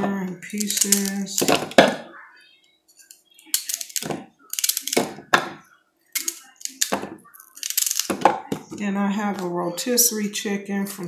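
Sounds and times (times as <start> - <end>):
pieces dropping into plastic bowl: 0.0 - 2.1, 3.5 - 5.6, 6.2 - 8.9.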